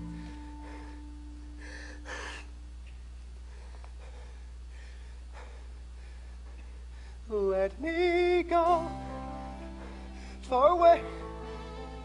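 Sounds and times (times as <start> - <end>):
person breathing heavily: 0.0 - 2.6, 3.4 - 7.3, 9.4 - 11.7
low electrical hum: 0.0 - 12.0.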